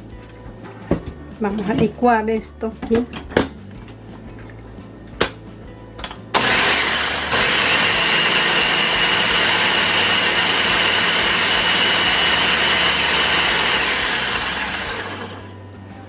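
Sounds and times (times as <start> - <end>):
blender running: 6.4 - 15.5.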